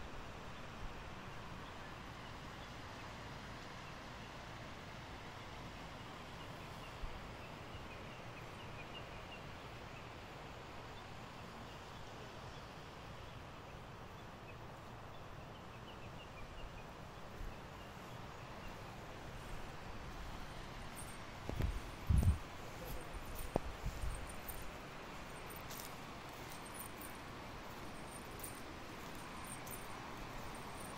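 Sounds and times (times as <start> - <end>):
river flowing over rocks: 18.2 - 30.9.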